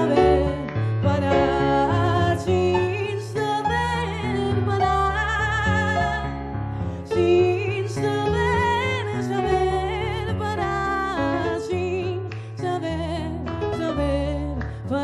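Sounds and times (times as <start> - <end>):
woman singing with vibrato: 0.0 - 6.4, 7.1 - 15.0
electric keyboard piano chords: 0.0 - 15.0.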